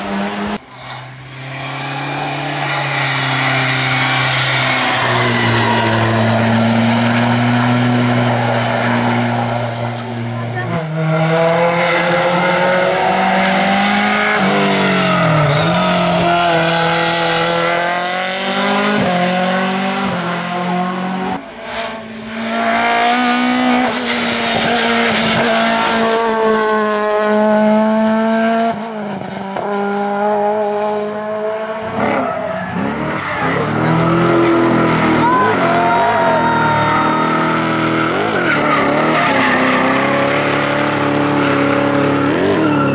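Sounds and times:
race car engines revving: 0:00.0 - 0:42.9
tyre squeal: 0:00.7 - 0:06.6, 0:14.3 - 0:16.6, 0:41.3 - 0:42.9.

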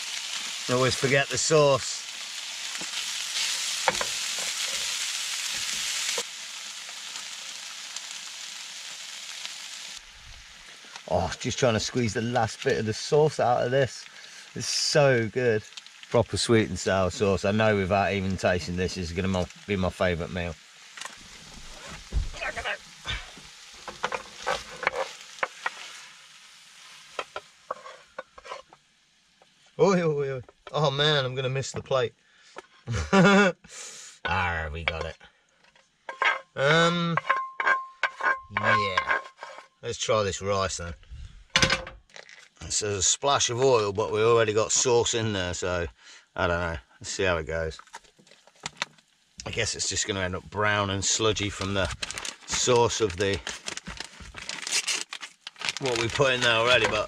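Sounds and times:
food sizzling in a frying pan: 0:00.0 - 0:33.5, 0:34.2 - 0:57.0
wooden spatula scraping pan: 0:23.8 - 0:26.2, 0:26.8 - 0:28.8, 0:35.7 - 0:39.8, 0:55.8 - 0:57.0.

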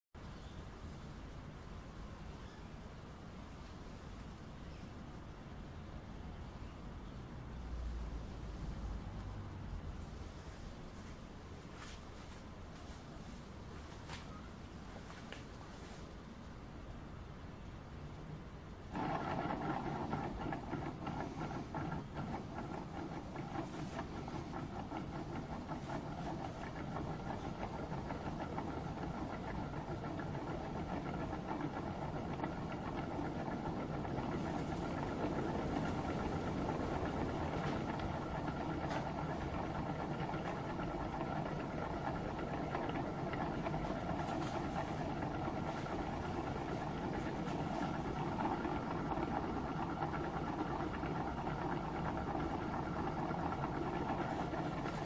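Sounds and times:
stirling engine running: 0:18.9 - 0:55.0.

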